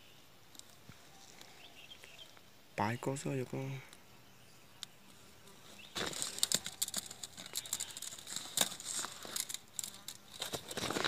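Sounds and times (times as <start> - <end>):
plastic sack rustling: 5.8 - 11.0.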